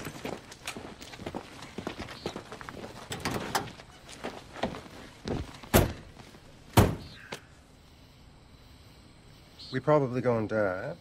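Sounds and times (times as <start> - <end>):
car door thudding shut: 5.7 - 6.0, 6.8 - 7.1.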